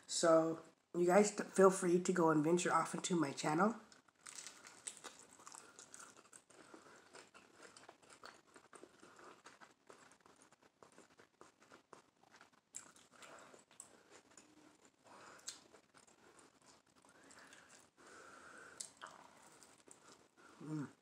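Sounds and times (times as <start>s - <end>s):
faint chewing: 3.9s - 21.0s
person biting toast: 4.2s - 17.9s.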